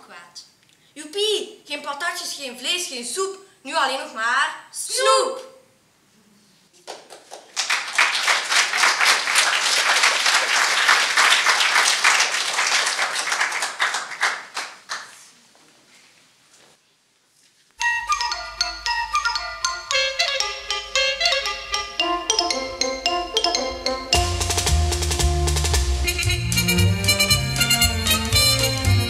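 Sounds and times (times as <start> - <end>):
audience applauding: 6.8 - 15.3
mallet percussion music: 17.8 - 29.0.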